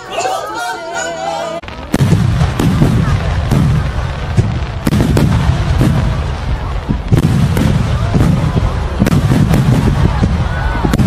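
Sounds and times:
firework bangs: 1.6s - 11.0s
low rumble and crackle: 1.6s - 11.0s.

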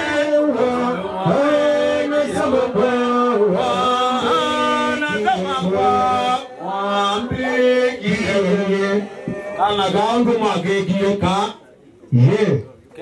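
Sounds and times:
man singing chant-like melody: 0.0s - 9.8s.

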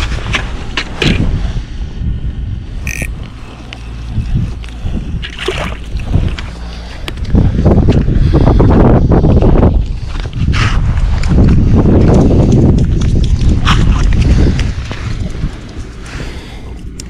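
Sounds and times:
wind buffeting microphone: 0.0s - 17.0s
gear clicking and crunching on ice: 2.8s - 5.4s.

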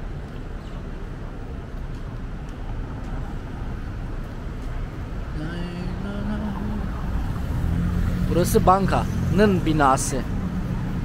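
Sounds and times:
street traffic rumbling: 0.0s - 11.0s
vehicle engine rising in pitch: 5.4s - 11.0s.

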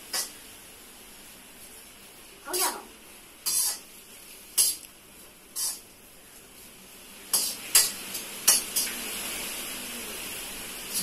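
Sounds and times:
faint steady hiss: 0.0s - 11.0s
steel ladle scraping a pan: 3.4s - 3.9s, 5.6s - 5.9s.

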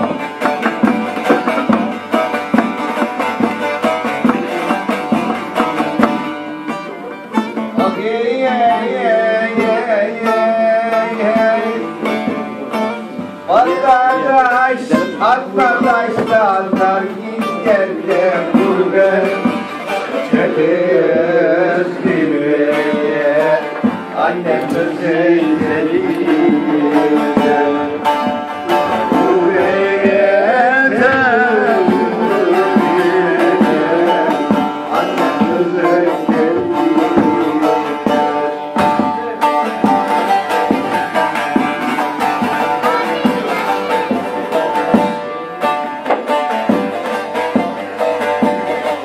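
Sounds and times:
long-necked lute strummed: 0.0s - 49.0s
man singing: 2.3s - 12.8s, 13.4s - 45.4s.

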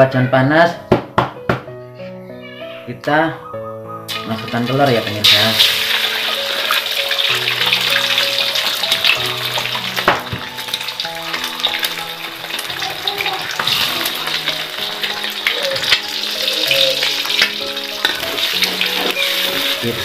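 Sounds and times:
background music: 0.0s - 20.0s
eggs sizzling in hot oil: 4.1s - 20.0s.

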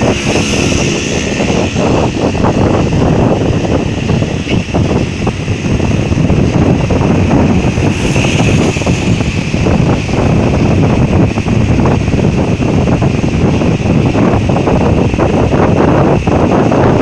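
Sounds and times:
motorcycle engine and road noise: 0.0s - 17.0s
wind buffeting microphone: 0.0s - 17.0s.

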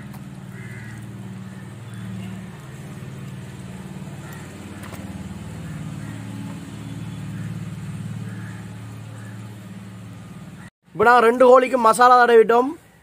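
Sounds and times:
engine idling: 0.0s - 10.7s.

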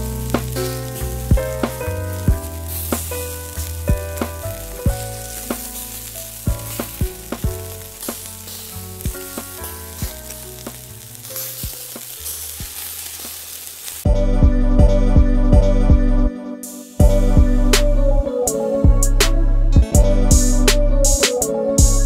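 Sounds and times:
meat sizzling on a griddle: 0.0s - 14.1s
soft plucked background music: 0.0s - 22.0s.

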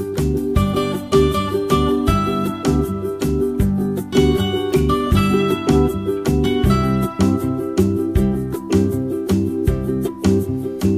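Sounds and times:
plucked string instrument music: 0.0s - 10.9s.

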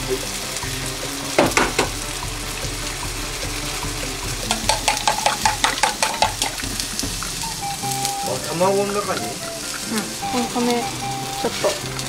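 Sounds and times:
egg cracking against steel bowl: 1.3s - 7.4s
chopsticks beating eggs in bowl: 1.3s - 7.8s.

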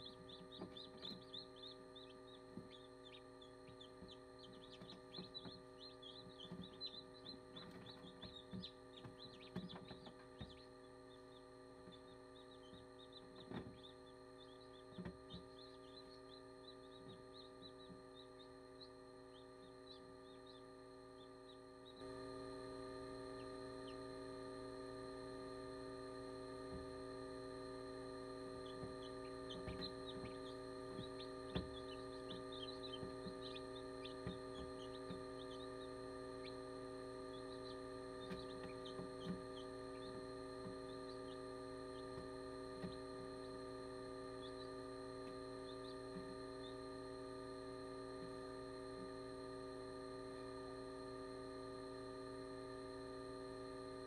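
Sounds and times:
chicks peeping: 0.0s - 22.0s, 23.3s - 24.0s, 28.5s - 43.6s, 44.3s - 46.8s
chicks tapping on egg: 0.0s - 22.0s, 23.3s - 24.0s, 28.5s - 43.6s, 44.4s - 46.8s
incubator electric hum: 0.0s - 54.0s.

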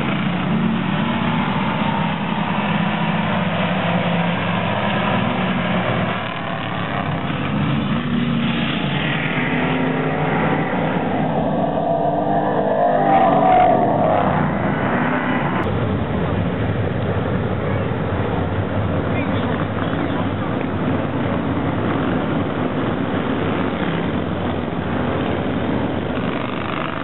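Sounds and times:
racing car engines droning: 0.0s - 27.0s.

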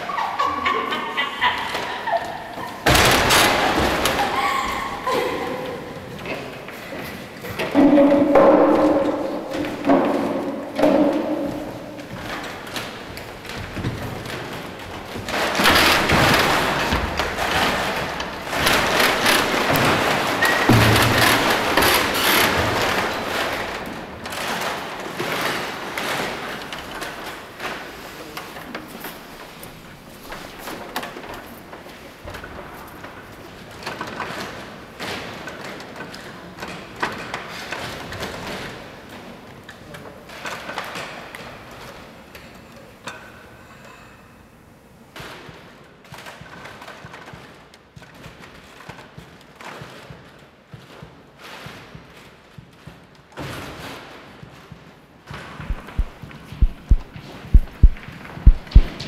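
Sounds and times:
room noise hiss: 55.3s - 59.0s
feet thudding on wooden floor: 55.6s - 59.0s
thumps and knocks on wood: 55.6s - 59.0s.

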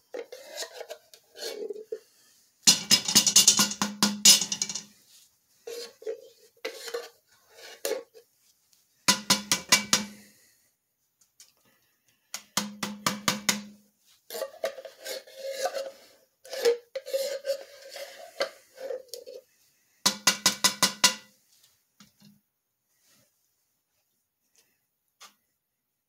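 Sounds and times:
spatula scraping pot: 0.0s - 5.0s, 5.6s - 8.3s, 14.3s - 19.5s
spatula tapping pot: 9.1s - 10.1s, 20.1s - 21.3s.

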